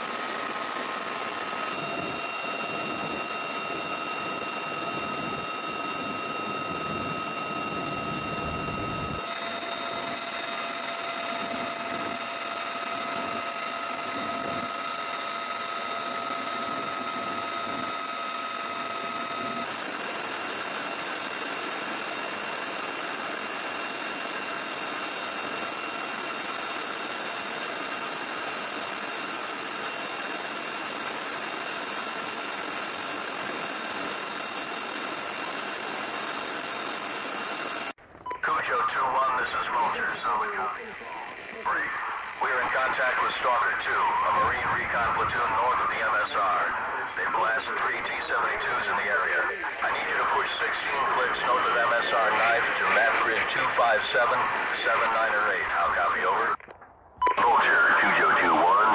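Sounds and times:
helicopter engine and rotor: 0:00.0 - 0:56.6, 0:57.2 - 0:58.9.

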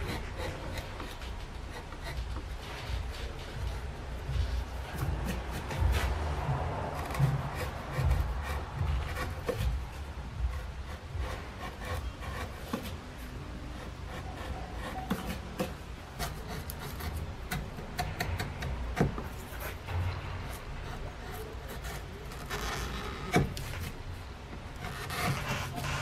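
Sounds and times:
chisel scraping wood: 0:00.0 - 0:26.0.

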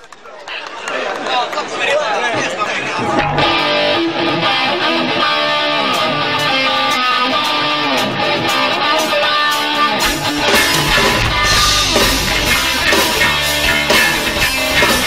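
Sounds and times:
electric guitar riff: 0:03.0 - 0:15.0.

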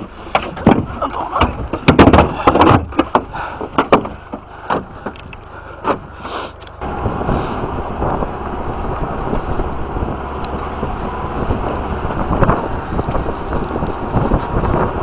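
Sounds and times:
atv engine running: 0:04.2 - 0:15.0
wind noise on microphone: 0:06.8 - 0:15.0.

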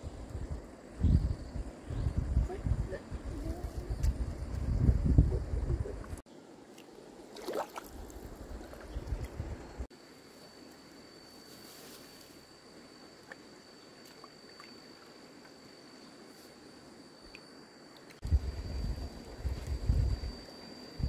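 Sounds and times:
wind rumble on microphone: 0:00.0 - 0:06.2, 0:08.0 - 0:09.9, 0:18.2 - 0:21.0
high-pitched insect drone: 0:09.6 - 0:21.0.

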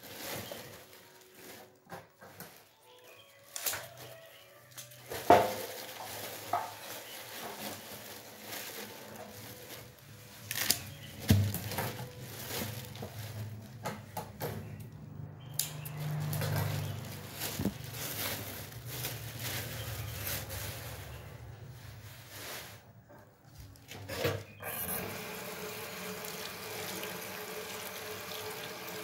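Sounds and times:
leaves rustling: 0:00.0 - 0:01.8, 0:02.5 - 0:13.8, 0:15.5 - 0:22.9.

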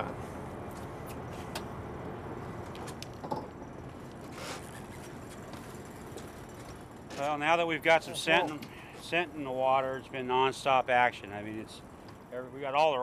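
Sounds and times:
boat rumbling: 0:00.0 - 0:13.0
voice: 0:07.2 - 0:11.8, 0:12.4 - 0:13.0.

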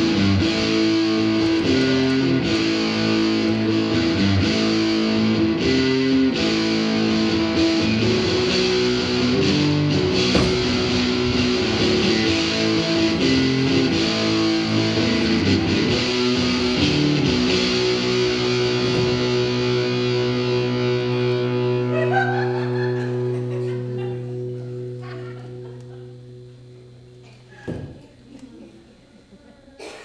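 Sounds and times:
low drone: 0:00.0 - 0:22.1
electric guitar music: 0:00.0 - 0:27.5.

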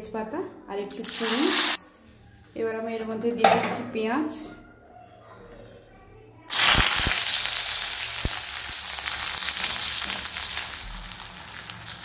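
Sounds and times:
onions sizzling in oil: 0:01.0 - 0:03.0, 0:06.5 - 0:12.0.

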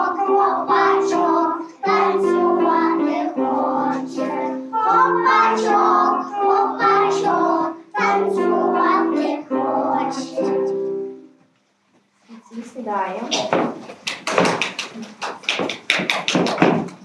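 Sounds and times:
children singing: 0:00.0 - 0:11.2.

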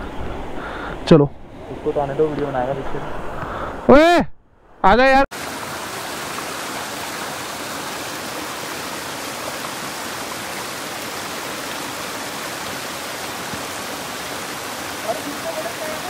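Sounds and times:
stream rushing over boulders: 0:05.3 - 0:16.0.

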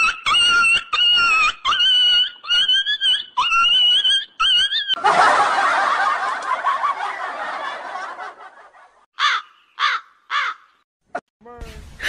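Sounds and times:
group laughing: 0:00.0 - 0:09.1.

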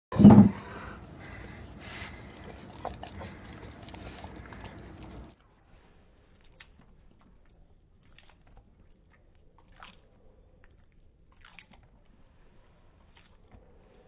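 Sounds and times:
dog licking and smacking: 0:01.2 - 0:05.4, 0:06.3 - 0:14.0.

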